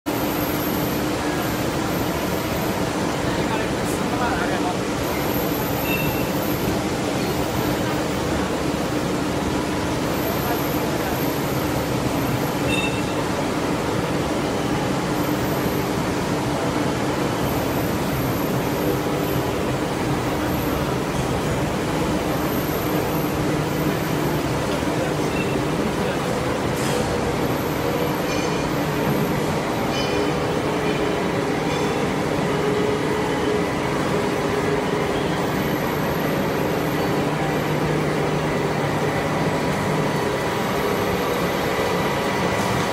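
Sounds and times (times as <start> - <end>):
factory machinery hum and hiss: 0.1 - 42.9.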